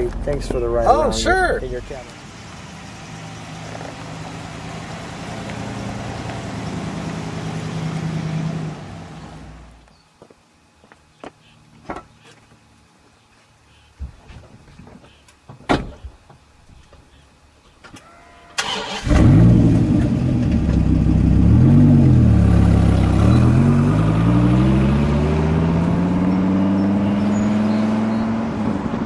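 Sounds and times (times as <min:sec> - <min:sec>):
car engine revving: 0:01.6 - 0:09.6, 0:18.6 - 0:29.0
starter cranking engine: 0:18.6 - 0:19.4.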